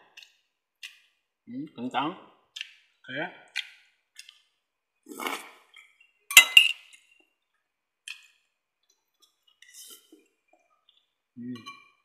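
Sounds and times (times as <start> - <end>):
metal spoon clinking on plate: 6.3 - 6.9.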